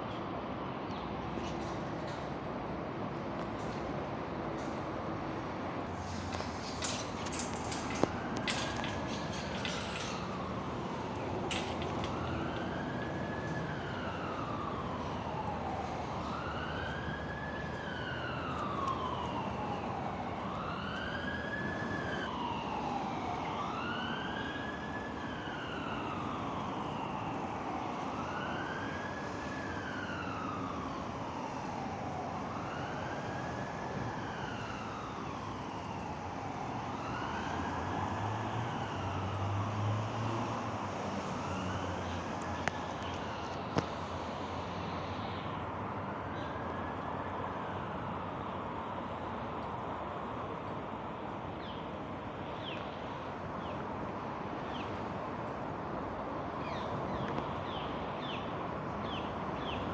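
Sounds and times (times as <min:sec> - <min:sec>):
siren wailing: 0:06.3 - 0:40.3.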